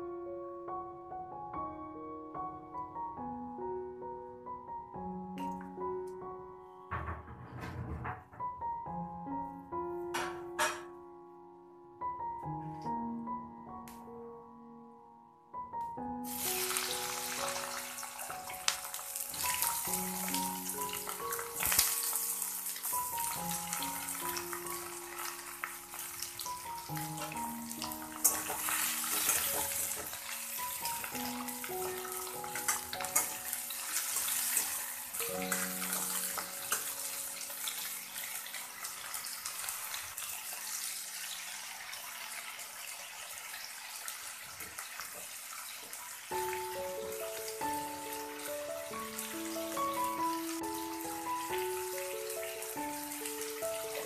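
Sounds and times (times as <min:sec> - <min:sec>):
background music with held notes: 0:00.0 - 0:39.7, 0:46.2 - 0:54.0
vegetables sizzling in hot oil: 0:16.2 - 0:54.0.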